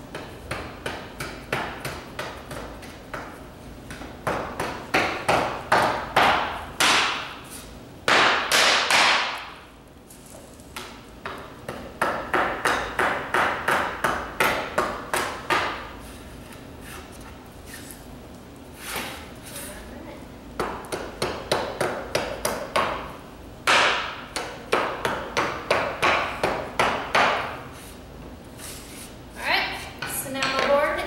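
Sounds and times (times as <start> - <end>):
hammer striking wooden board: 3.9 - 7.4, 8.1 - 9.6, 11.2 - 15.8, 20.6 - 27.5.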